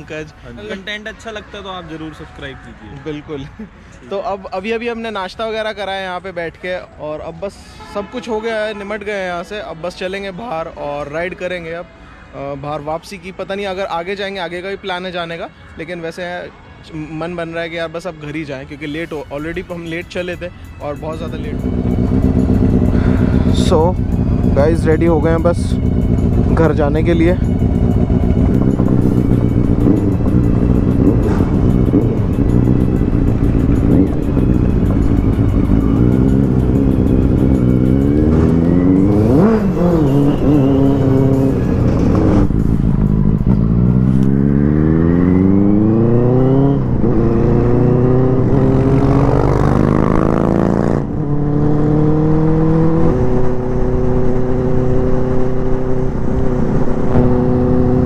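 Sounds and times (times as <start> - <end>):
motorcycle engine shifting gears: 21.5 - 58.0.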